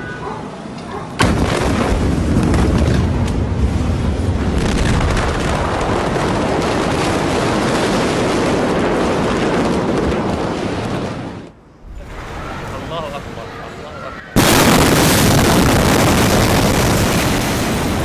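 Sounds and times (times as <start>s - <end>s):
explosion rumble: 1.2s - 13.4s, 14.4s - 18.0s.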